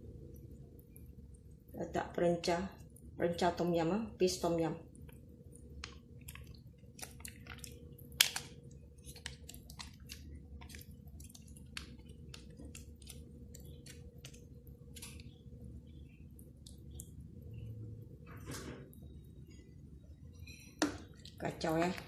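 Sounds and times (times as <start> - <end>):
faint steady hum: 0.0 - 22.0
plastic sachet crinkling: 5.8 - 15.4.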